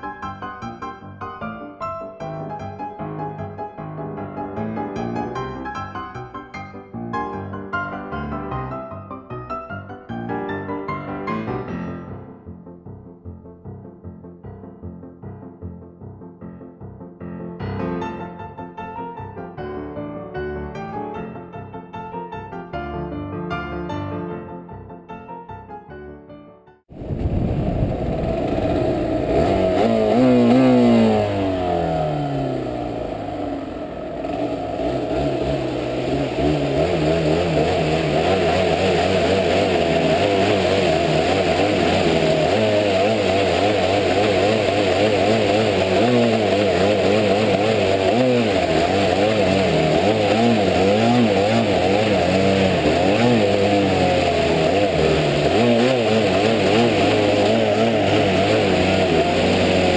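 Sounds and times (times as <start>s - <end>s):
two-stroke motorcycle engine revving: 27.0s - 59.9s.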